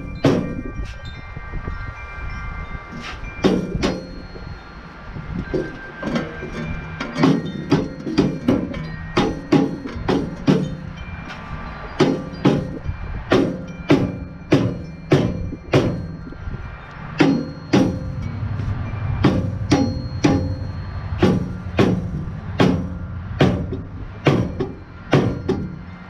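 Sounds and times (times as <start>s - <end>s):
metallic ring: 0.0s - 26.0s
rubber mallet striking metal pulley: 5.5s - 10.9s, 19.2s - 25.8s.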